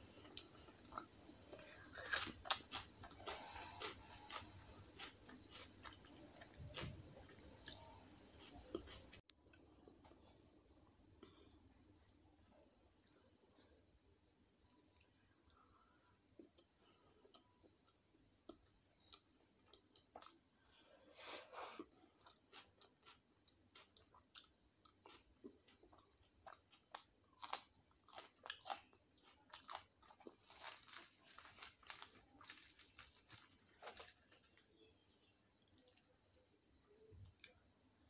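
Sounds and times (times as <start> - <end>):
wet chewing: 0.2 - 9.3
crisp crunches: 27.4 - 36.5.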